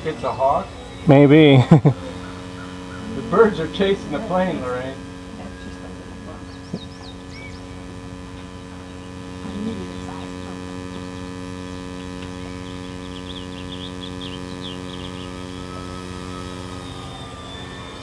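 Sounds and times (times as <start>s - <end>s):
steady low hum: 0.0s - 18.0s
faint bird chirps: 2.1s - 3.3s, 5.4s - 9.1s, 11.9s - 18.0s.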